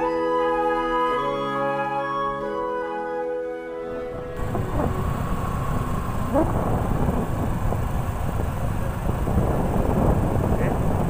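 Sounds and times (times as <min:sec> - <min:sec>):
short rising tone: 0:03.9 - 0:08.3
motorcycle engine: 0:04.1 - 0:11.0
wind rushing over microphone: 0:04.1 - 0:11.0.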